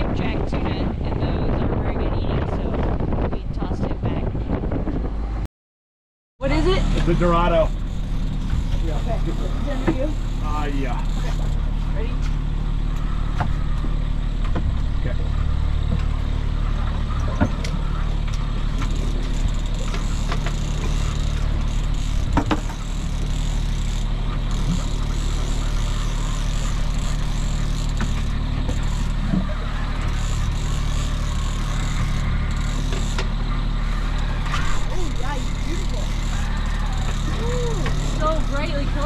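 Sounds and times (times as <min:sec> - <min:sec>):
boat engine humming: 0:06.4 - 0:39.0
sharp clicks and knocks: 0:16.8 - 0:25.5.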